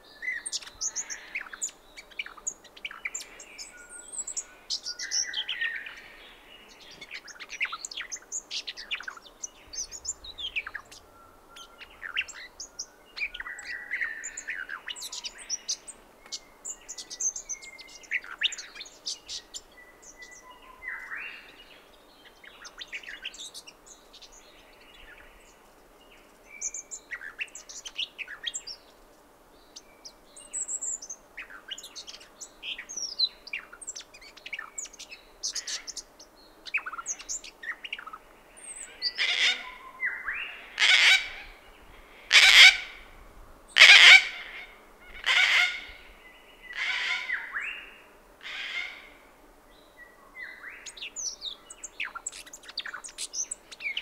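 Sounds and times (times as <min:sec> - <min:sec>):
small birds chirping and twittering: 0:00.0 - 0:54.0
cockatoo harsh creaky screeches: 0:45.2 - 0:45.9.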